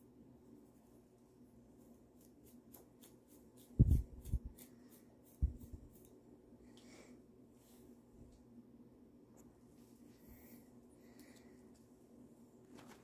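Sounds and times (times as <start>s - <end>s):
plastic comb scratching hair: 2.2s - 6.1s.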